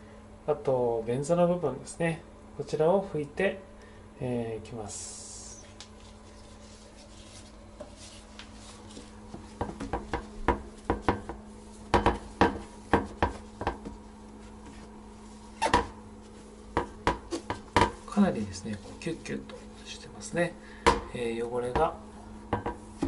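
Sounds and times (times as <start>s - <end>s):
cloth squeaky rubbing on plastic: 14.4s - 16.5s.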